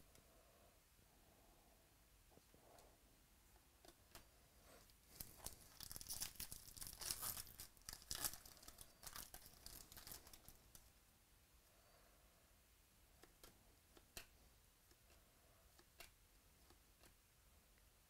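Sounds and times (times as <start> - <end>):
foil wrapper tearing and crinkling: 5.2 - 10.6.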